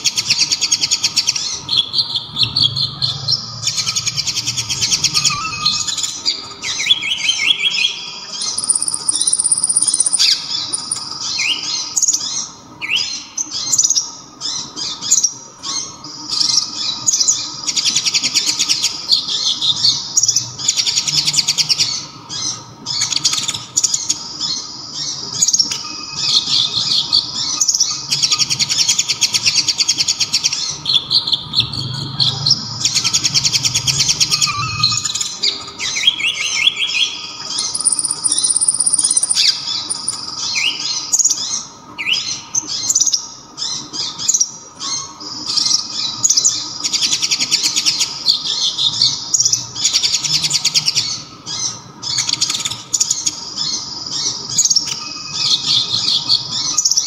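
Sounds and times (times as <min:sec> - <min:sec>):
sunbird singing trills and chirps: 0:00.0 - 0:57.0.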